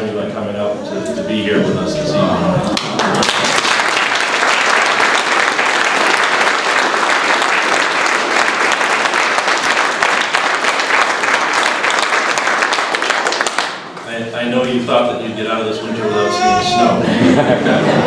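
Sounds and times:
audience applauding: 2.6s - 14.1s.

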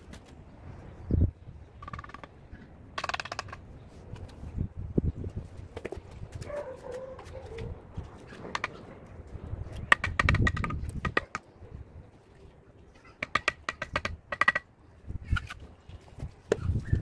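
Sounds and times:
trowel tapping on bricks: 9.9s - 11.4s.

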